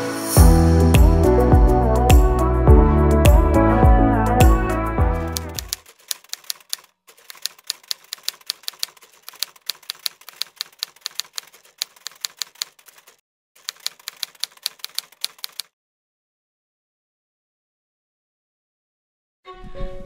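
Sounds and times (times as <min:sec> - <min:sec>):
typewriter key clicks: 0:05.4 - 0:15.7.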